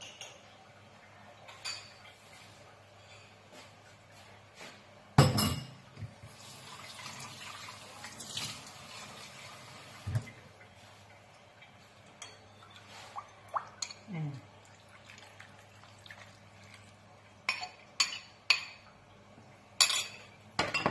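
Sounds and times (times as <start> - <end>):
crockery clunk: 5.2 - 5.8, 19.9 - 20.9
water running: 6.0 - 20.4.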